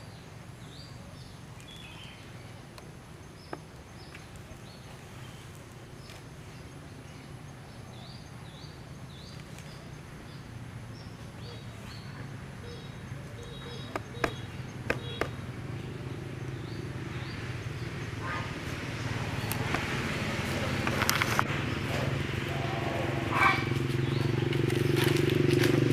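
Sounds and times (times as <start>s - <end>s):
animal rustling through leaf litter: 23.7s - 25.9s.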